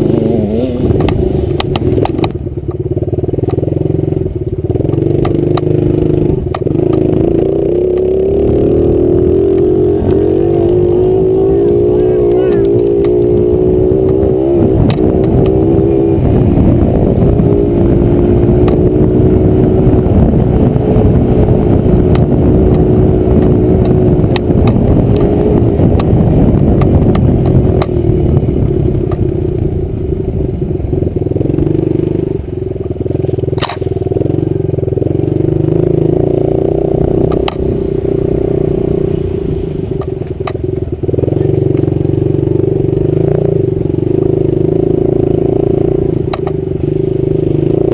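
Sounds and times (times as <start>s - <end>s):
two-stroke dirt bike engine: 0.0s - 47.9s
sharp clicks: 46.3s - 46.6s.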